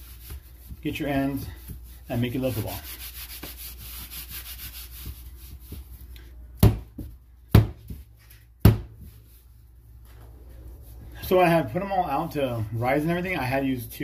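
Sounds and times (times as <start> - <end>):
dough rubbed on countertop: 0.0 - 6.4, 7.8 - 11.8
dough slapped on counter: 6.6 - 8.0, 8.6 - 9.0.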